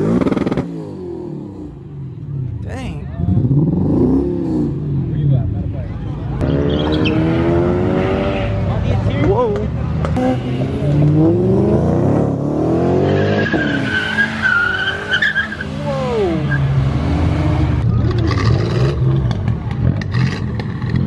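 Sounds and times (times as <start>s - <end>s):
car engine revving: 0.0s - 21.0s
tires squealing: 6.4s - 11.4s, 12.6s - 20.9s.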